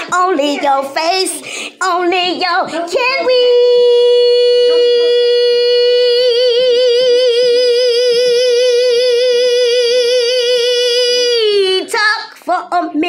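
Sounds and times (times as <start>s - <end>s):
person singing long note with vibrato: 3.4s - 11.8s.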